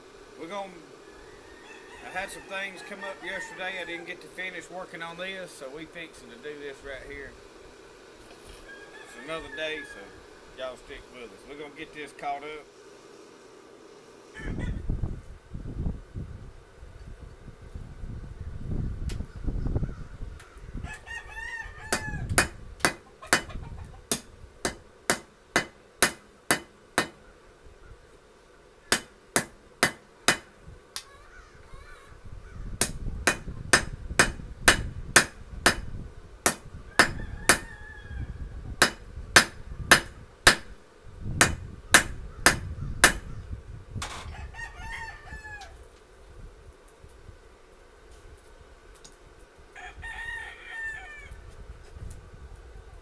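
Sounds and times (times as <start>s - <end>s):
rooster crowing: 0.9s - 4.4s, 8.4s - 10.4s, 14.2s - 14.9s, 20.4s - 22.5s, 36.8s - 38.7s, 44.1s - 45.9s, 49.7s - 51.5s.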